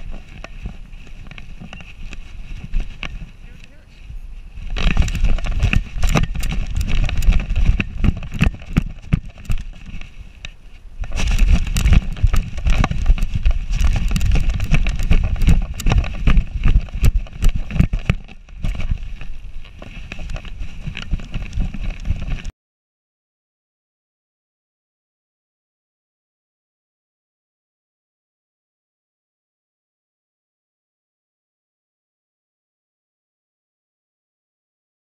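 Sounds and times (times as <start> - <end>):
wind buffeting microphone: 0.0 - 22.5
dog stride thumps: 11.0 - 22.5.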